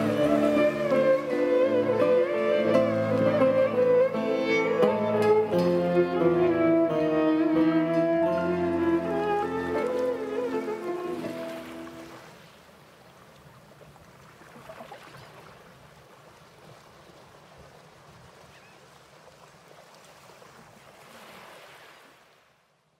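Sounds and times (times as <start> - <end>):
bowed string music: 0.0 - 12.2
sea water lapping: 0.0 - 22.4.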